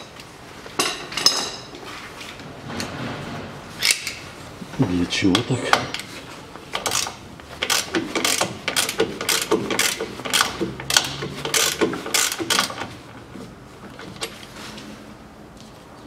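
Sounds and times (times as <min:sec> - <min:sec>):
ratchet wrench clicking: 0:06.8 - 0:12.8.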